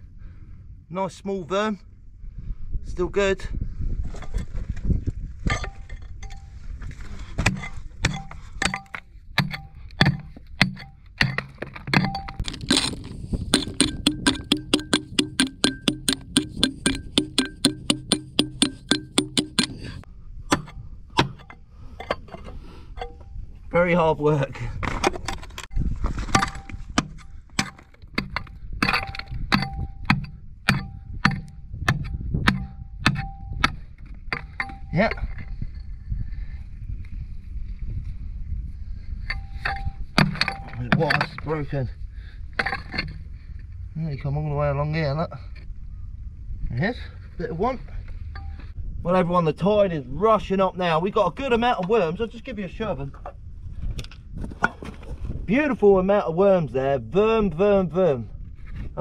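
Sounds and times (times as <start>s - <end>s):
pickaxe striking rock: 7.4s - 21.5s, 26.3s - 35.1s.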